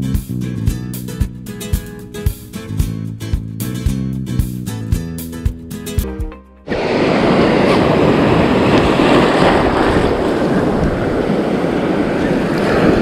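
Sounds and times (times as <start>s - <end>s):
surf washing and breaking: 6.7s - 13.0s
wind buffeting microphone: 6.7s - 13.0s.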